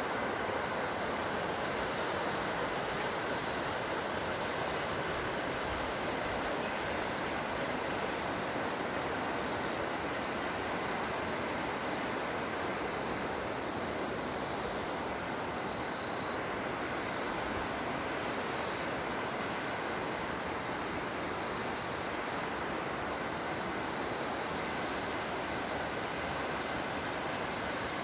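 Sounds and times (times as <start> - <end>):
river rushing over boulders: 0.0 - 28.0.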